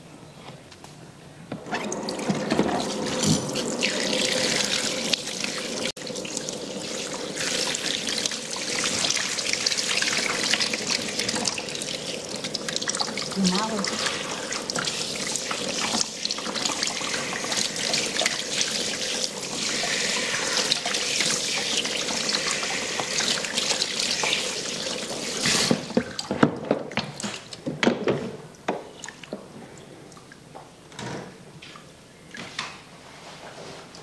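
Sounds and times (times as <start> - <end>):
hand shower spraying water: 2.0 - 11.8, 12.4 - 25.9.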